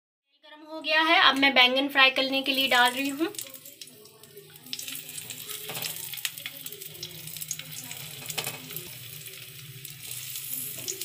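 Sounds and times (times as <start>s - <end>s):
vegetables sizzling in oil: 2.2s - 11.0s.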